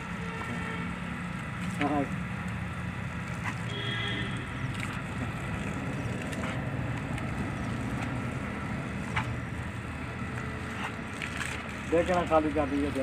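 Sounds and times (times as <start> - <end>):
garden hose spraying onto lawn: 4.4 - 13.0.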